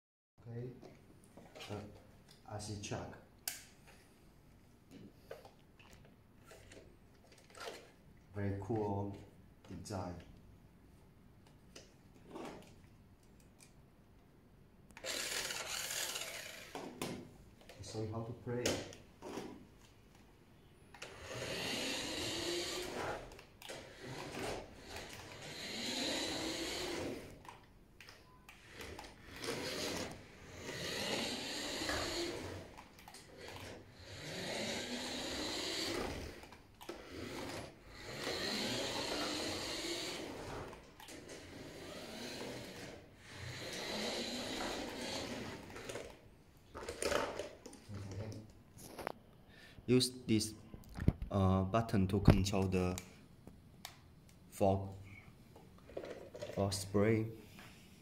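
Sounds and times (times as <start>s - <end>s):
toy truck motor whirring: 6.4s - 8.0s, 15.0s - 18.0s, 20.9s - 47.8s.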